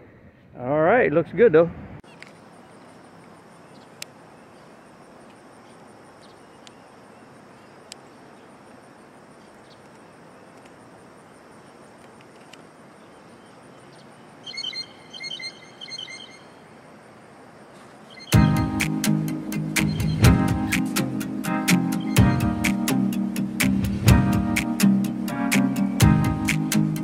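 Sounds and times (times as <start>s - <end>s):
faint clicks: 9.5s - 10.8s
high ringing chirps: 14.5s - 16.6s, 18.1s - 21.0s.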